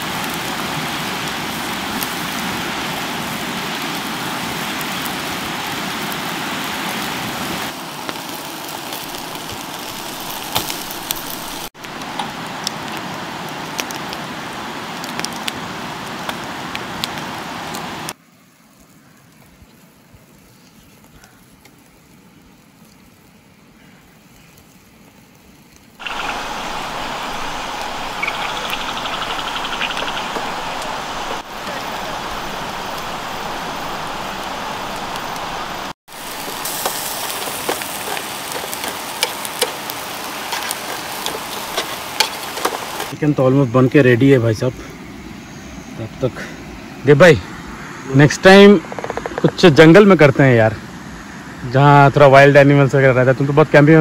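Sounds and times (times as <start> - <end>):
chicken sizzling on grill: 0.0 - 16.4, 18.3 - 44.8
fire crackles: 0.0 - 54.0.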